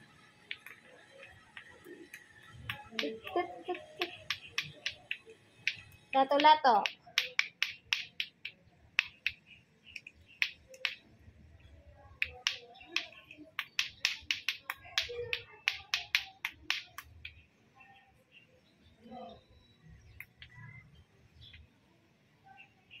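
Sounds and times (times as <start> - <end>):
plastic clacker balls knocking: 0.4 - 9.4, 10.0 - 11.2, 12.2 - 17.4.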